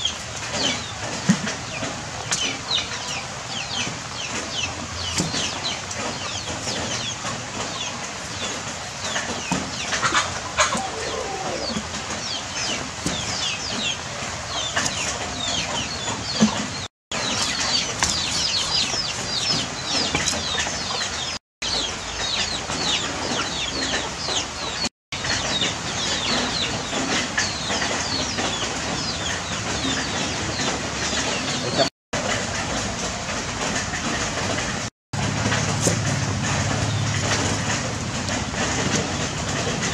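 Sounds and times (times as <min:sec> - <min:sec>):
birds chirping: 0:00.0 - 0:31.9.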